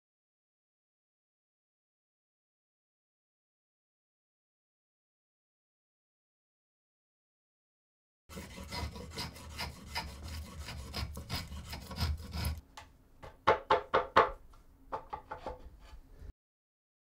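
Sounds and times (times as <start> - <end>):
rasp scraping wood: 8.3 - 12.6.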